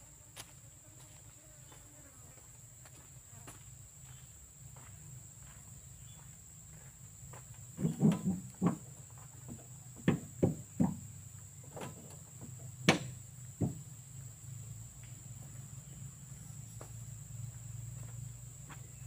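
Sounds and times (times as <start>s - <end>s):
footsteps on dirt: 0.0s - 11.0s, 16.7s - 19.0s
high insect drone: 0.0s - 19.0s.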